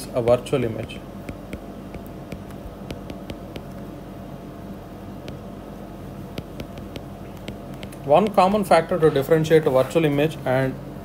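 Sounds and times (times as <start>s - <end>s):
room tone hum and hiss: 0.0s - 11.0s
stylus tapping on drawing tablet: 0.3s - 3.8s, 5.2s - 5.5s, 6.3s - 8.4s.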